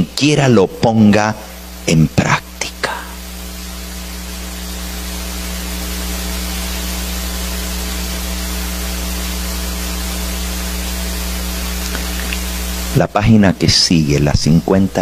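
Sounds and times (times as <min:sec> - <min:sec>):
low electrical hum: 0:00.0 - 0:15.0
static hiss: 0:00.0 - 0:15.0.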